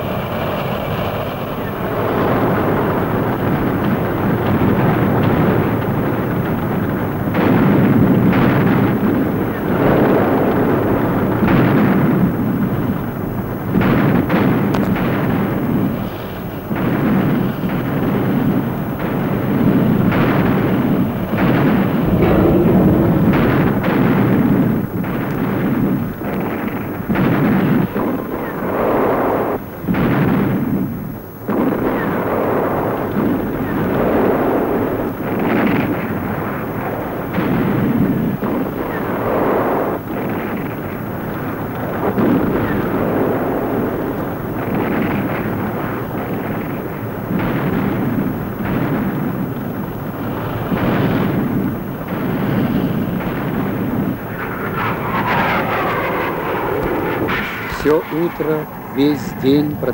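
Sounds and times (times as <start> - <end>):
tank cannon fire: 1.7 - 59.9
continuous battle din: 13.7 - 28.7
shell explosions: 13.7 - 30.7.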